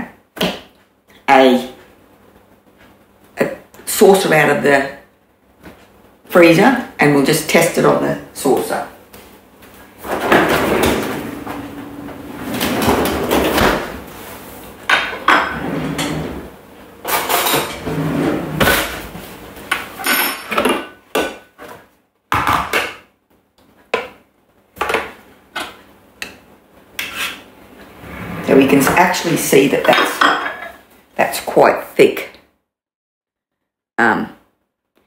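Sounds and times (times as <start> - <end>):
kitchenware knocks and clatters: 20.0 - 21.4, 29.8 - 30.8.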